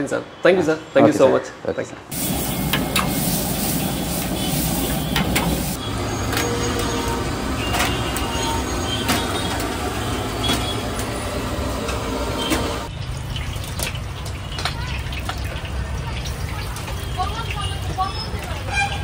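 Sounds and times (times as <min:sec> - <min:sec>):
gas burner roar: 0:02.1 - 0:12.9
rice sizzling in wok: 0:02.1 - 0:12.9.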